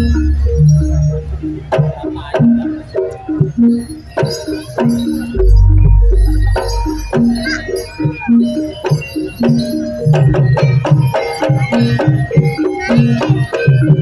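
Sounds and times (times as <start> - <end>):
gong-chime notes: 4.2 - 13.9.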